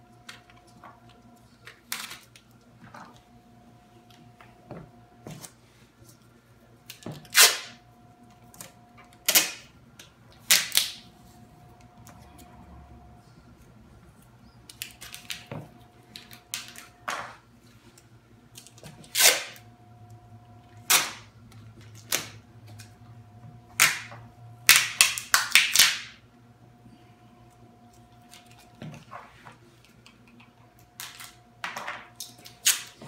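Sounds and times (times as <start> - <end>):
packing tape ripping off roll: 6.9 - 7.8, 9.2 - 9.7, 10.4 - 11.0, 19.0 - 19.6, 20.8 - 21.3, 32.2 - 33.0.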